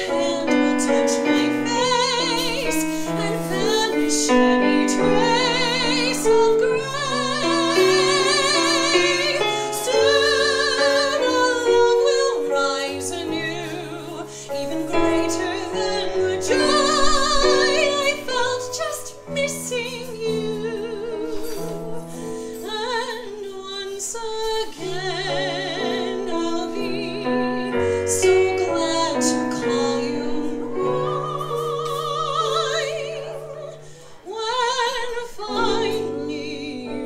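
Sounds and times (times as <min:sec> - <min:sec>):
digital piano: 0:00.0 - 0:37.0
woman singing with vibrato: 0:00.0 - 0:37.0.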